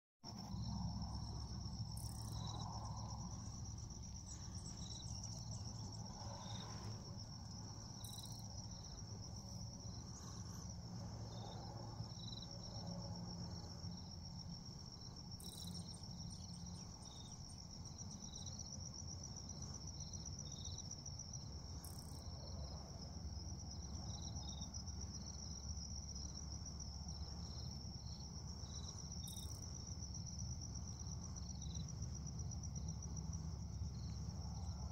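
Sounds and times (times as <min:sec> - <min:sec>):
low rumble: 0:00.3 - 0:14.8
crickets trilling: 0:00.3 - 0:34.9.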